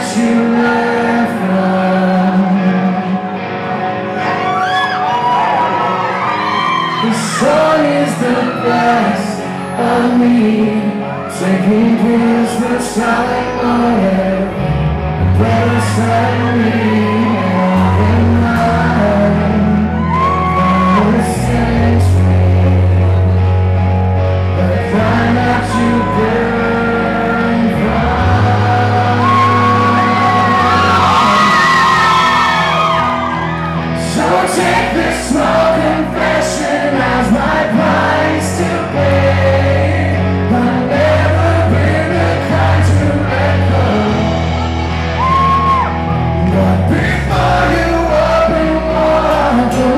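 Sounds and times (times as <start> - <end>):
man singing into microphone: 0.0 - 3.4, 6.9 - 33.4, 34.0 - 44.6, 45.3 - 49.9
rock band playing: 0.0 - 49.9
deep bass line: 11.7 - 49.9.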